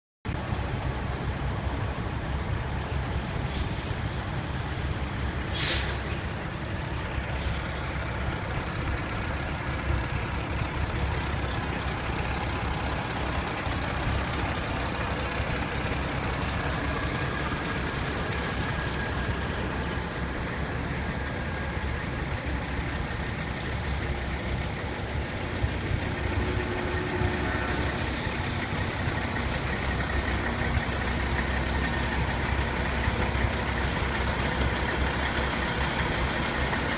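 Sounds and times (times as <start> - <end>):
diesel truck engines: 0.3 - 36.9
air brake hiss: 3.4 - 4.1, 5.5 - 6.2, 7.3 - 8.0, 27.7 - 28.4.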